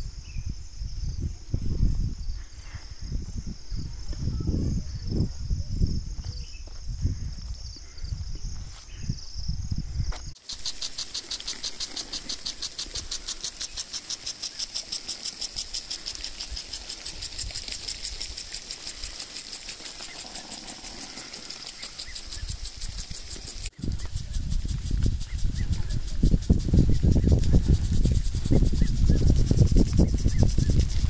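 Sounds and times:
wind buffeting microphone: 0.0s - 10.4s, 11.1s - 31.0s
insects: 0.0s - 31.0s
impact sprinklers ticking: 10.4s - 31.0s.

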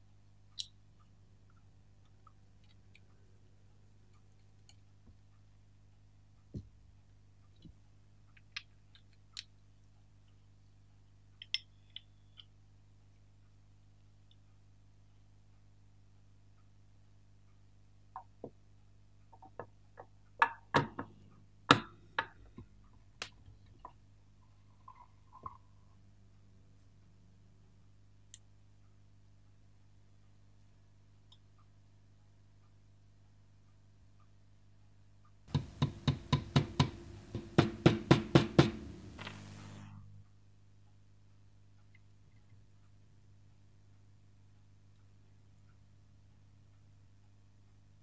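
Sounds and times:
small hammer tapping metal: 35.5s - 39.8s.

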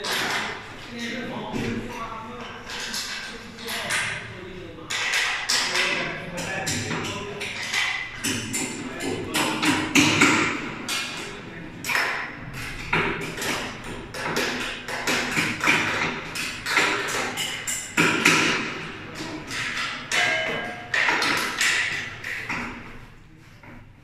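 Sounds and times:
metal parts knocking: 4.9s - 22.9s.

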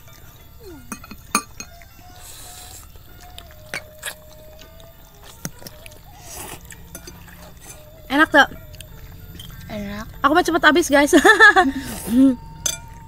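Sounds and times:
metal cutlery clinking on bowls: 0.0s - 1.9s, 6.7s - 7.8s, 12.6s - 13.0s
faint background music: 0.0s - 13.0s
noodles slurped: 5.2s - 7.9s.

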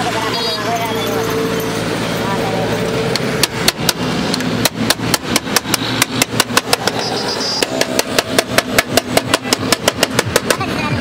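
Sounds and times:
street traffic humming: 0.0s - 11.0s
hammer striking steel panel: 4.6s - 7.0s, 7.6s - 10.6s.

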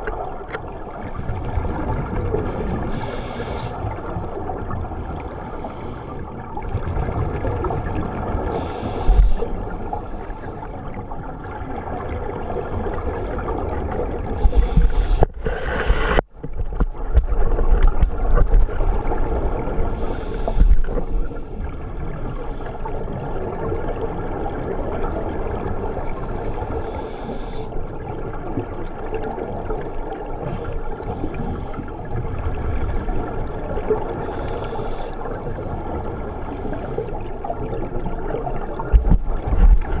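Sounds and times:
muffled rumble of water: 0.0s - 40.0s
bubbles gurgling underwater: 6.3s - 22.2s, 37.1s - 40.0s.

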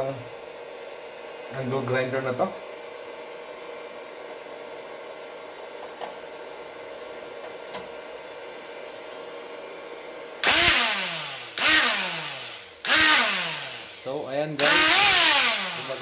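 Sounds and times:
angle grinder motor whirring: 10.4s - 16.0s.

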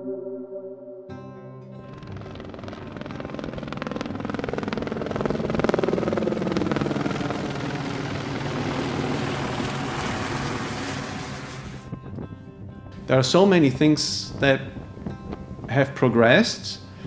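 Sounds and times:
helicopter rotor blades chopping: 1.8s - 12.1s.

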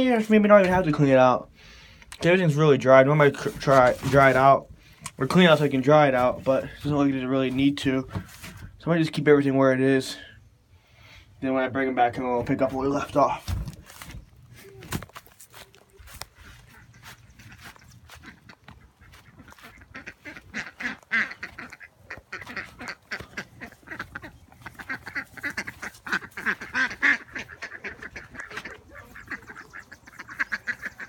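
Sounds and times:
ducks quacking: 2.9s - 8.8s, 15.6s - 31.0s.

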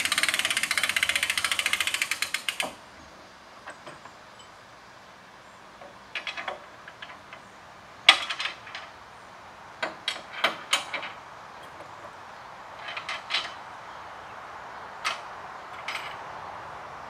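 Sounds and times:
metal hitch clicks and clanks: 5.8s - 9.0s, 9.8s - 12.2s, 12.8s - 13.7s, 15.0s - 16.3s.

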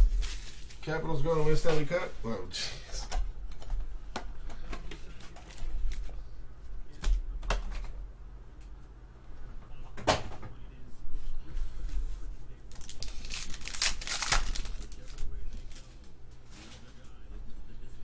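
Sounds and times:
foil card pack crinkling and tearing: 0.0s - 1.0s, 12.7s - 15.9s.

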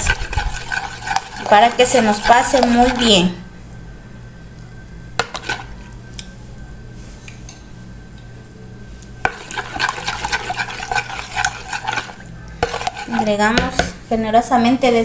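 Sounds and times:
spoon stirring liquid in bowl: 0.0s - 3.3s, 5.2s - 5.9s, 9.2s - 14.0s.

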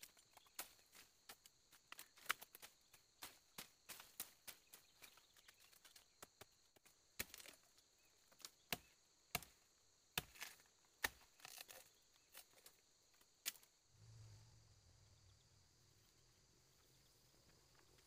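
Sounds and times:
machete chopping bamboo: 8.6s - 9.6s, 10.2s - 11.9s.

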